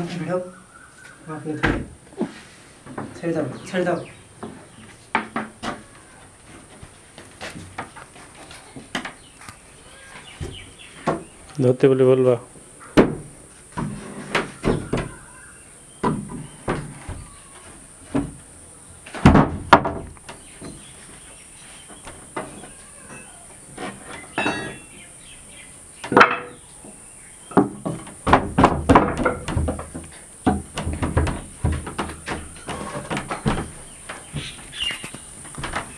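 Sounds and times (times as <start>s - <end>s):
steady high hiss: 0.0s - 35.9s
knocks and thuds on wood: 4.4s - 5.9s, 10.3s - 11.4s, 13.0s - 15.2s, 16.0s - 17.3s, 18.1s - 18.4s, 19.1s - 20.8s, 26.0s - 35.9s.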